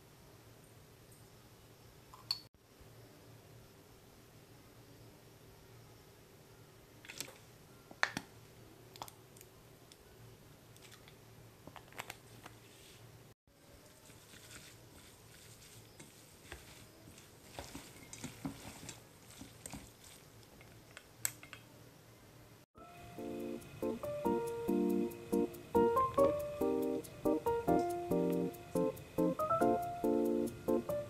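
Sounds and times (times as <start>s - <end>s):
utensil stirring salad in bowl: 13.9s - 20.9s.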